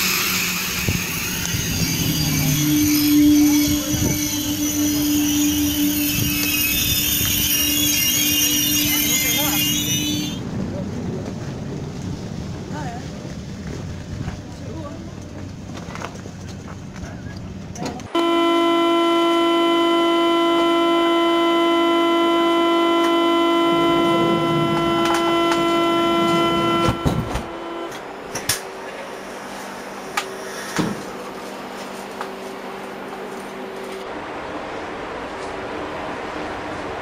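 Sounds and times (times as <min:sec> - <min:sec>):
wind: 0:00.0 - 0:37.0
electronic warning tone: 0:18.2 - 0:28.0.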